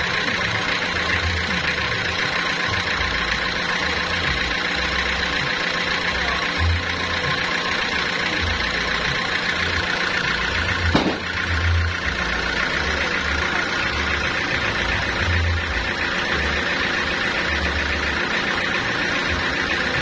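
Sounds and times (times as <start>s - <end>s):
sawmill engine idling: 0.0s - 20.0s
sharp knock: 10.9s - 11.4s.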